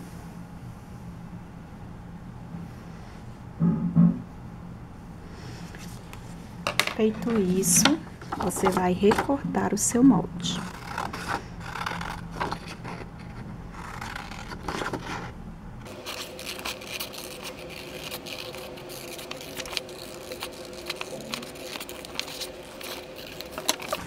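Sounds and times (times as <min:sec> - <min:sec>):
card scraping and rustling: 0:05.6 - 0:09.4, 0:10.5 - 0:24.0.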